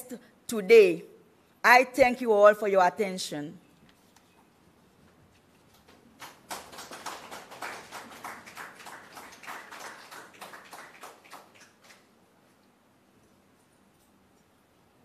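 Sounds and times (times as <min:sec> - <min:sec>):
audience applauding: 0:06.2 - 0:12.1.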